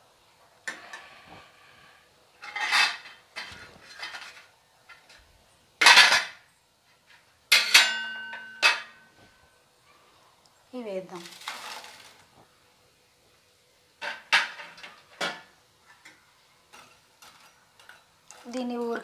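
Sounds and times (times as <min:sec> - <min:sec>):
metal cookware clattering: 0:02.4 - 0:05.2, 0:05.8 - 0:06.4, 0:07.5 - 0:09.1, 0:14.0 - 0:19.0
ringing metal clang: 0:07.5 - 0:09.1.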